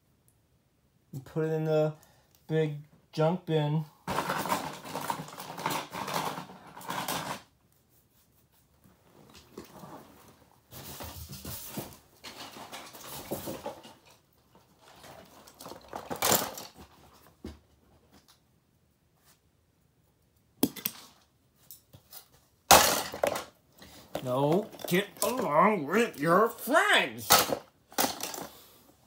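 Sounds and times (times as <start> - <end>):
plastic fragments clattering: 4.1 - 7.4, 14.8 - 16.9, 22.7 - 25.6, 27.2 - 28.6.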